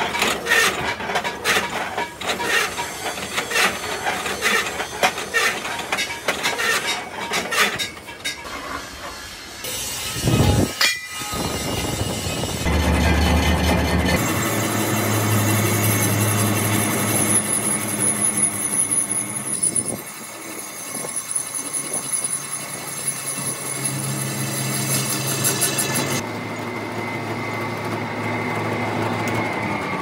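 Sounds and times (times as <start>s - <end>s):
machine humming and whining: 9.0s - 30.0s.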